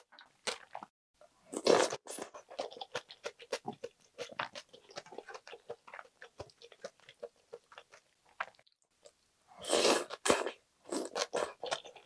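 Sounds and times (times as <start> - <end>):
slurping noodles: 9.6 - 12.0.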